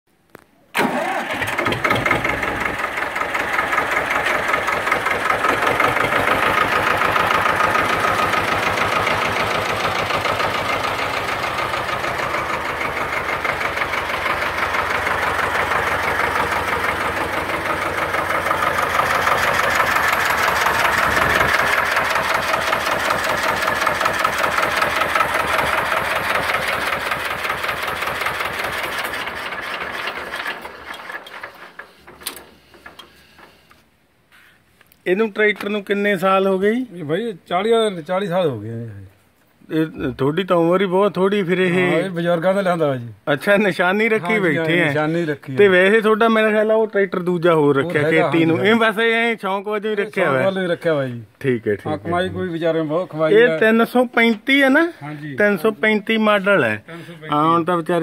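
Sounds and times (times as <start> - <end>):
diesel tractor engine idling: 0.8 - 33.8.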